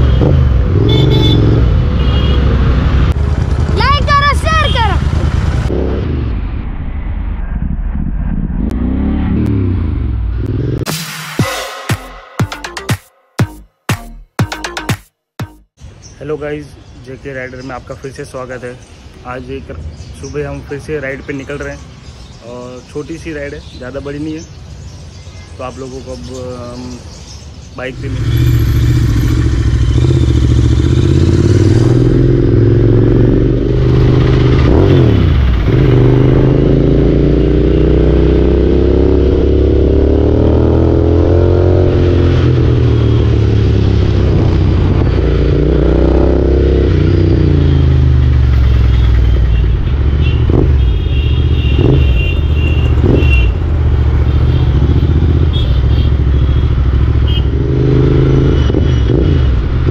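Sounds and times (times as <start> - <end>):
motorcycle engine revving: 0.0 - 4.0, 8.4 - 10.9, 27.9 - 59.9.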